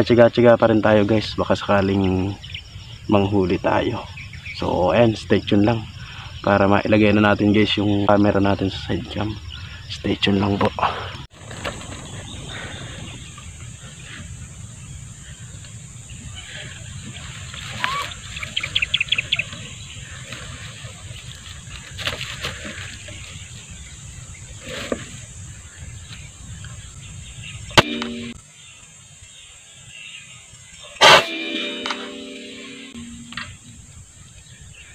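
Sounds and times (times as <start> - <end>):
birds calling: 0.0 - 34.9
air rifle shot: 27.8 - 28.4, 31.0 - 33.4.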